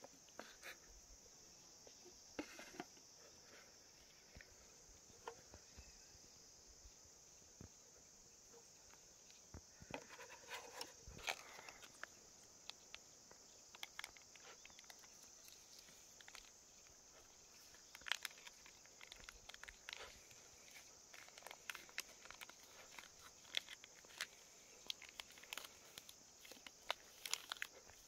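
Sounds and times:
faint high hiss: 0.0s - 28.0s
plastic bowls clicking and crinkling: 9.3s - 28.0s
sachet crackling: 11.2s - 28.0s.

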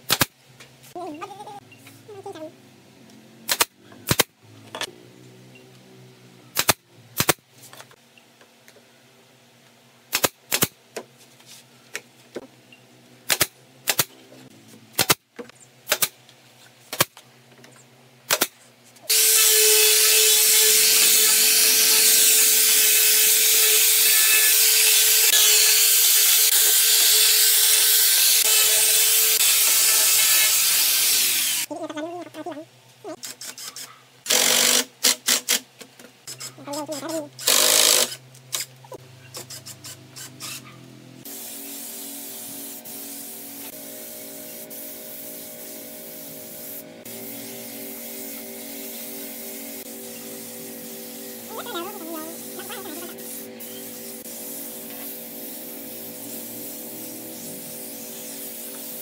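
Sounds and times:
nail gun shots: 0.0s - 0.3s, 3.5s - 4.3s, 6.5s - 7.4s, 10.1s - 10.8s, 13.3s - 14.1s, 15.0s - 15.2s, 15.9s - 16.2s, 18.3s - 18.5s
angle grinder on wood: 19.1s - 31.7s.

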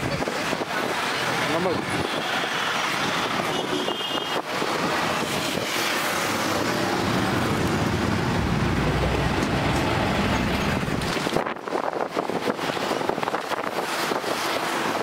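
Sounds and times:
roadside traffic: 0.0s - 15.0s
low vehicle rumble: 6.4s - 11.5s.

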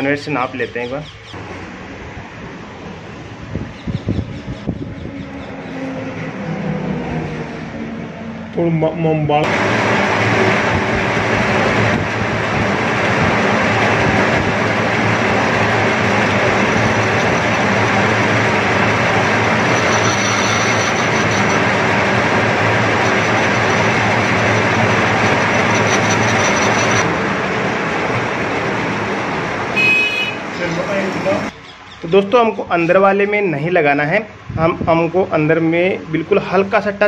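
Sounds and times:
metal lathe cutting metal: 9.4s - 27.3s.

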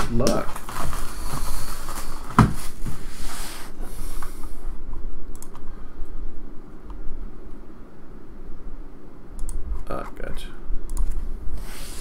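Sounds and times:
plastic wrap crinkling: 0.0s - 2.4s.

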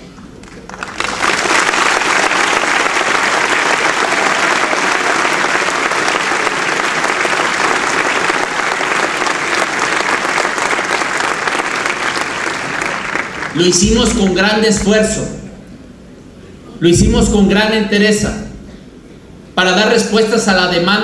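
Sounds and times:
audience applauding: 0.4s - 13.8s.

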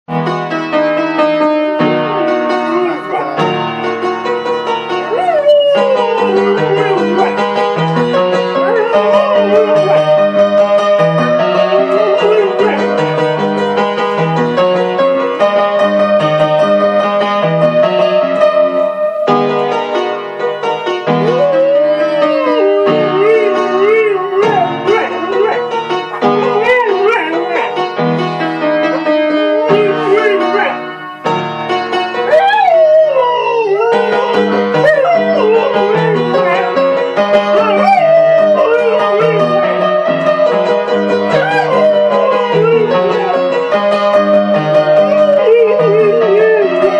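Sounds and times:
piano playing pop chords: 0.1s - 46.9s
dog howling: 2.0s - 3.8s, 4.9s - 13.2s, 17.5s - 19.9s, 21.1s - 27.8s, 28.9s - 30.9s, 32.2s - 46.9s.

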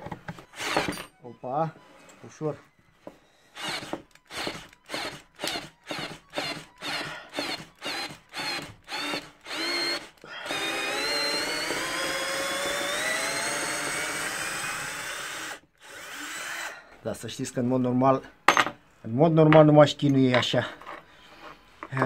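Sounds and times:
cordless drill driving screw in wood: 0.5s - 1.1s, 3.6s - 16.8s.

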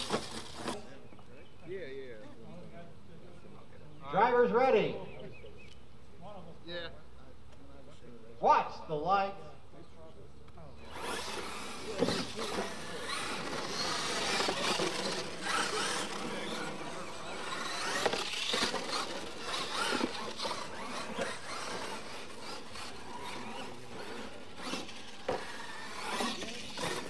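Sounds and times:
electric motors whining: 0.0s - 1.0s, 10.8s - 27.0s
tyre and drivetrain noise: 0.0s - 1.2s, 10.8s - 27.0s.

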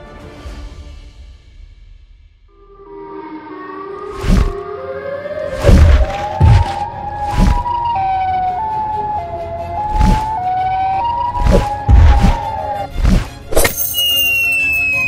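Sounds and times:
cartoon siren wail: 2.8s - 12.9s
heavy thudding stomps: 5.7s - 6.8s.

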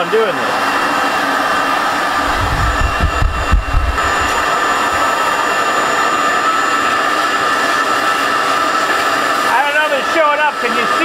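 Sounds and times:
shop vacuum whining: 0.0s - 11.0s
low rumbling bumps: 2.2s - 5.0s.

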